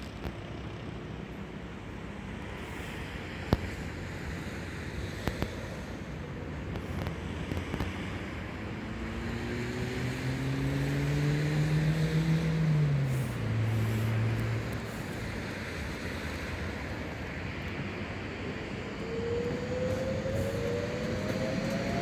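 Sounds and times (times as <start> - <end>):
train rolling and wind noise: 0.0 - 10.8, 12.5 - 22.0
electric train motor whine: 19.0 - 22.0.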